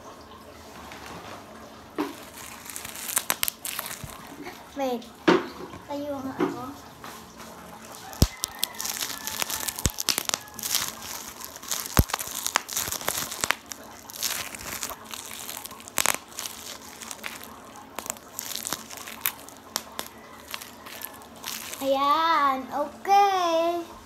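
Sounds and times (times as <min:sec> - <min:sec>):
bubble wrap crinkling: 0:02.0 - 0:05.0, 0:07.0 - 0:22.5.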